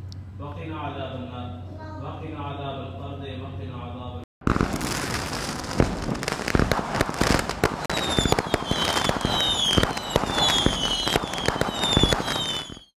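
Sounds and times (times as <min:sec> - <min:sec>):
fireworks bangs and crackling: 0:04.4 - 0:12.9
short falling whistles: 0:07.9 - 0:12.9.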